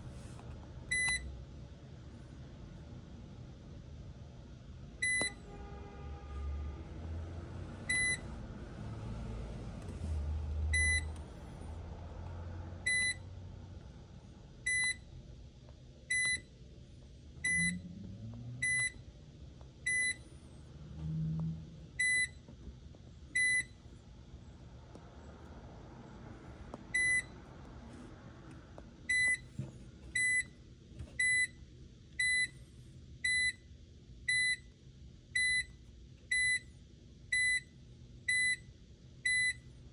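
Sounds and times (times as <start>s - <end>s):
washer control panel beeping: 0.9s - 1.3s, 5.0s - 5.4s, 7.9s - 8.2s, 10.7s - 11.1s, 12.9s - 13.2s, 14.6s - 15.0s, 16.1s - 16.5s, 19.9s - 20.2s, 23.4s - 23.7s, 29.1s - 29.5s, 30.1s - 30.5s, 31.2s - 31.6s, 32.2s - 32.6s, 35.4s - 35.7s, 39.3s - 39.6s.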